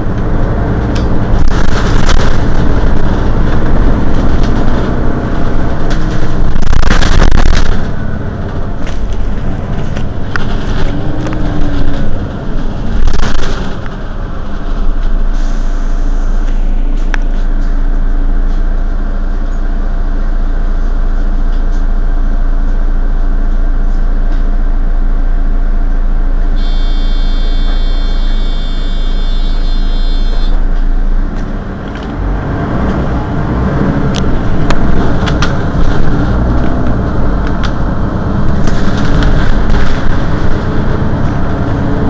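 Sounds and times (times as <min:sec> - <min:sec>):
bus diesel engine idling: 0:07.5 - 0:32.4
high steady tone: 0:26.6 - 0:30.7.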